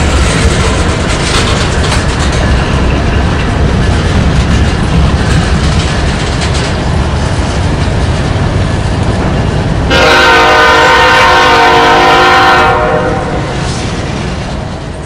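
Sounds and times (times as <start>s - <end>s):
locomotives rumbling past: 0.0s - 15.0s
wheels clacking on rails: 0.0s - 15.0s
locomotive air horn chord: 9.9s - 13.8s.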